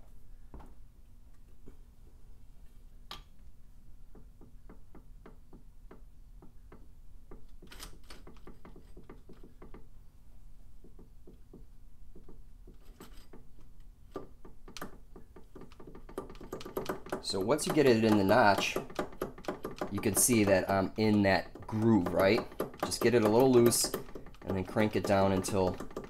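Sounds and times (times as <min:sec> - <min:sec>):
engine turned by hand clicking: 0:14.7 - 0:26.0.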